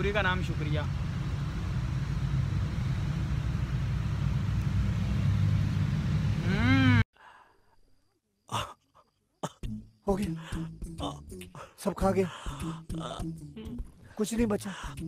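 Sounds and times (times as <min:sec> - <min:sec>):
steady low rumble: 0:00.0 - 0:07.0
rising and falling vocal sound: 0:06.4 - 0:07.0.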